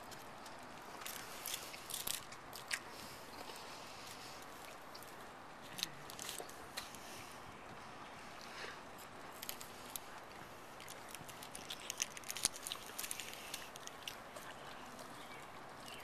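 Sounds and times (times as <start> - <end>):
outdoor background hiss: 0.0 - 16.0
foil wrapper crinkling: 1.0 - 2.8, 9.3 - 14.8.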